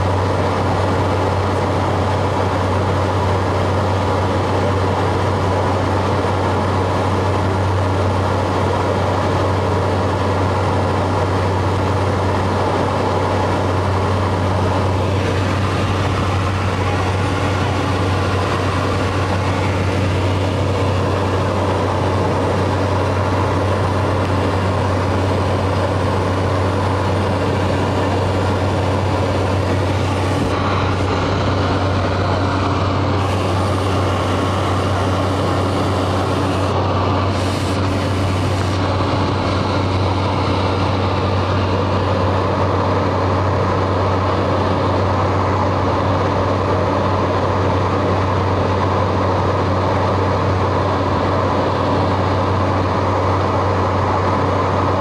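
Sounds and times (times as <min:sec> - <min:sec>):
turboprop engine drone: 0:00.0 - 0:55.0
airflow noise: 0:11.3 - 0:46.2.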